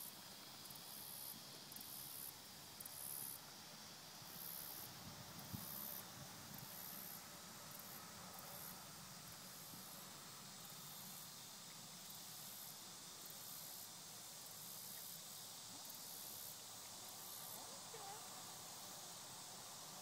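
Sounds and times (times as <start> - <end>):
steady hiss: 0.0 - 20.0
high insect buzz pulsing: 9.6 - 20.0.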